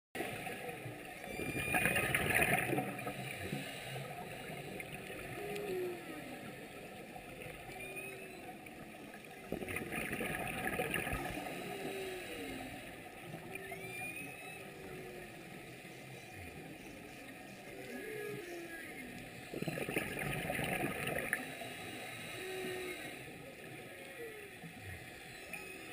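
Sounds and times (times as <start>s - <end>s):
whale song: 0.2s - 25.9s
diver exhaling bubbles: 1.5s - 3.1s, 9.6s - 11.5s, 19.6s - 21.4s.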